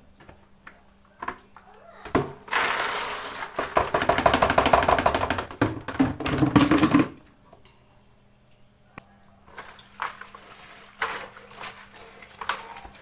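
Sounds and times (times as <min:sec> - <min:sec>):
beans rattling into plastic basin: 0:02.4 - 0:07.2, 0:09.5 - 0:13.0.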